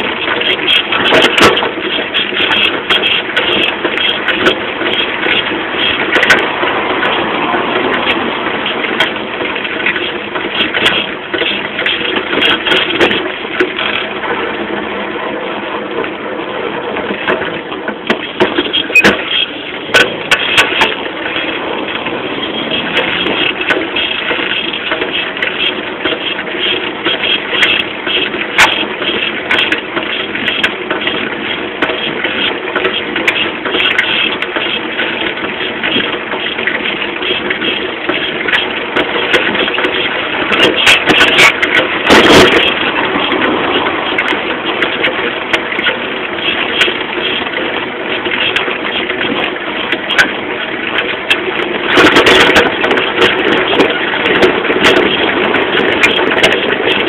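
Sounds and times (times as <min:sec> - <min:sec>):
moped engine running: 0:00.0 - 0:57.0
wind and road noise: 0:00.0 - 0:57.0.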